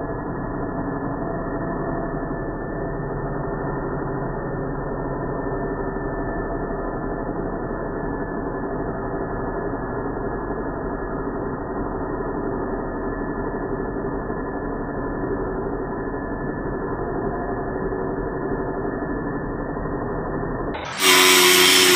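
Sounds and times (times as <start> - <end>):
slowed grinder low drone: 20.8 - 21.9.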